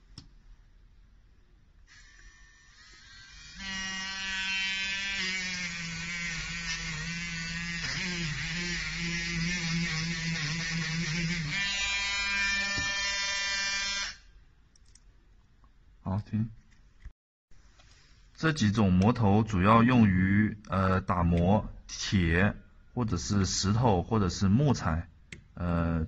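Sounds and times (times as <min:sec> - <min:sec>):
electric rotary tool whining: 0:01.9 - 0:14.2.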